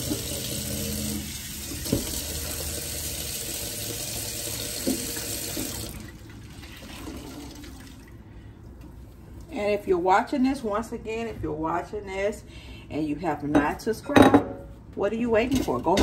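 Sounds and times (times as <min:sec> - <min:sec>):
faucet running into steel sink: 0:00.0 - 0:08.1.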